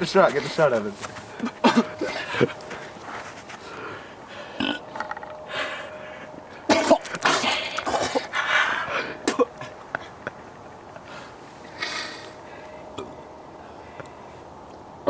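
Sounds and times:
man retching and gagging: 4.6s - 4.9s, 6.7s - 8.3s.

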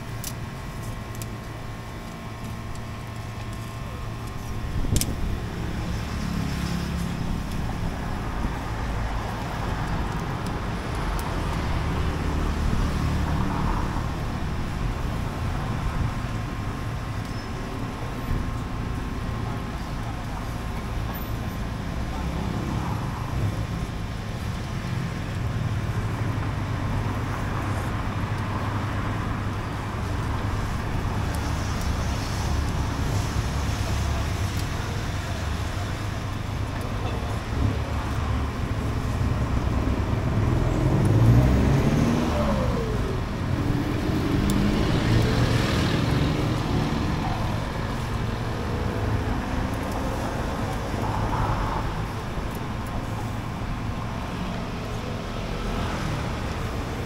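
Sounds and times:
street traffic rumble: 0.0s - 57.0s
vehicle engine passing close: 24.9s - 57.0s.

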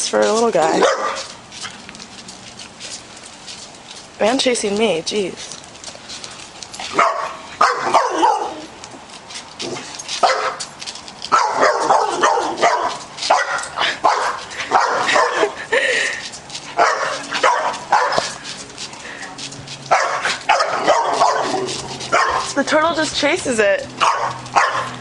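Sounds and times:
dog barking and yipping: 0.7s - 1.4s, 6.8s - 8.7s, 9.7s - 10.7s, 11.3s - 15.6s, 16.7s - 18.5s, 19.8s - 22.6s, 24.0s - 25.0s.

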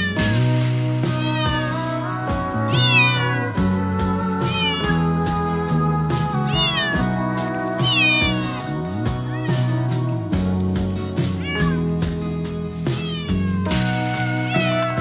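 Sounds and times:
cat meowing: 0.0s - 0.4s, 1.1s - 2.0s, 2.7s - 3.6s, 4.5s - 5.1s, 6.5s - 7.1s, 7.8s - 9.9s, 11.2s - 12.0s, 12.9s - 15.0s
background music with beat: 0.0s - 15.0s.

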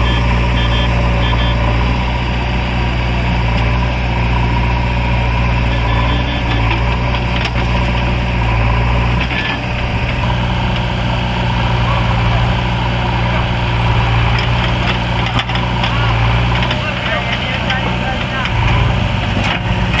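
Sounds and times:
short electronic beeps: 0.0s - 1.8s, 5.8s - 6.7s
diesel engines droning: 0.0s - 20.0s.

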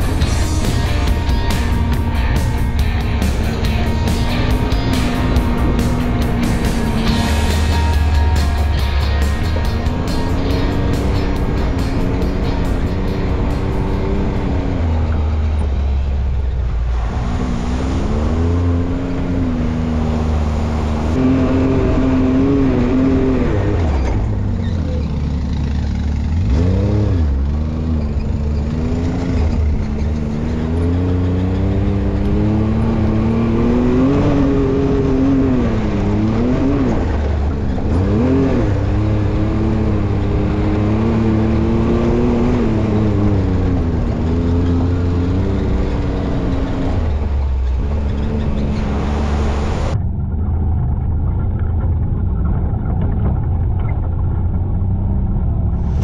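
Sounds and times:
utility vehicle engine running: 0.0s - 56.0s.

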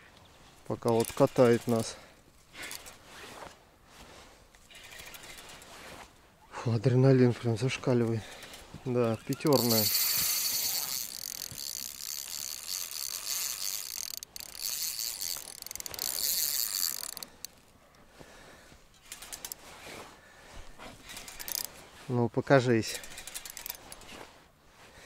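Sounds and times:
fishing reel rattling and clicking: 0.8s - 2.0s, 2.6s - 3.0s, 4.6s - 5.8s, 8.0s - 17.7s, 18.9s - 19.6s, 21.0s - 21.8s, 22.8s - 24.2s.

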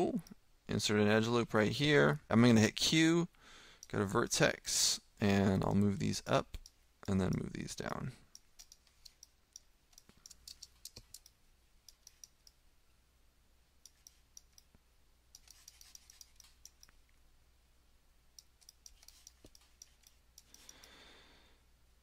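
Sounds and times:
computer mouse and keyboard clicking: 8.4s - 12.6s, 13.8s - 14.8s, 15.4s - 17.0s, 18.4s - 20.9s.

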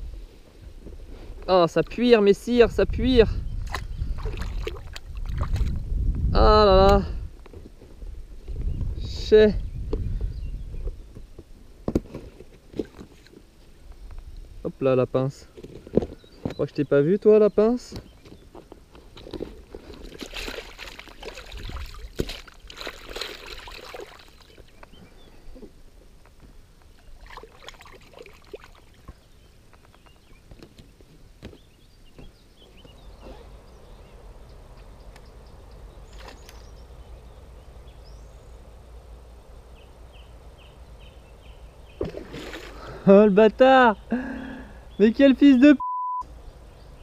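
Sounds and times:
water sloshing against hull: 3.6s - 5.8s, 19.1s - 24.8s, 41.9s - 42.9s.

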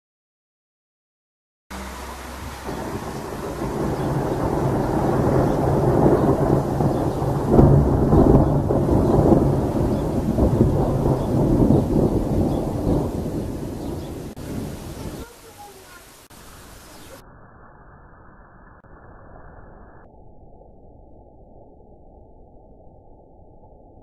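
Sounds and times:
rolling thunder: 1.7s - 15.5s.

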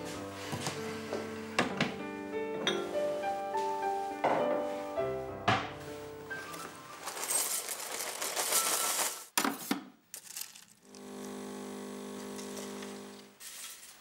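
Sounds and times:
cornflakes rattling into bowl: 7.0s - 9.3s, 10.1s - 10.8s, 13.4s - 14.0s.

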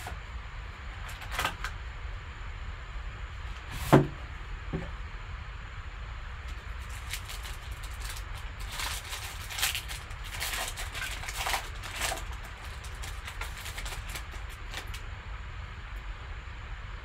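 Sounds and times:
low steady hum: 0.0s - 17.0s
foil pack crinkling and tearing: 1.0s - 1.7s, 6.5s - 15.0s.

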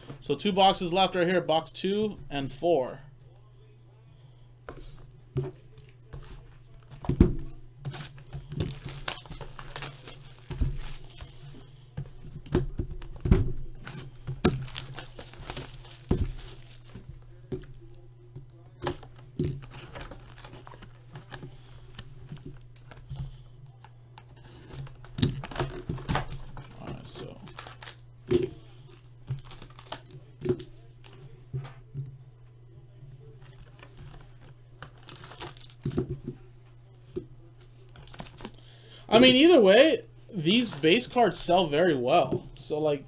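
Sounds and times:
plastic wrap tearing and crinkling: 7.8s - 11.5s, 13.8s - 17.1s, 19.5s - 21.0s, 24.9s - 28.1s, 28.8s - 30.1s, 34.8s - 35.9s, 38.0s - 38.6s
foil packs crackling: 7.8s - 12.2s, 13.8s - 18.0s, 18.9s - 23.4s, 24.5s - 30.3s, 33.5s - 36.0s, 37.9s - 39.6s.

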